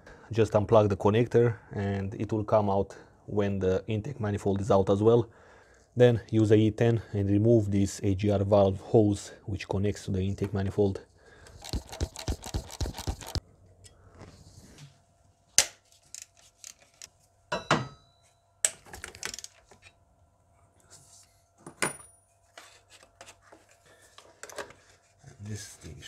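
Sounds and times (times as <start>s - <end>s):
socket ratchet clicking: 11.5s - 13.4s.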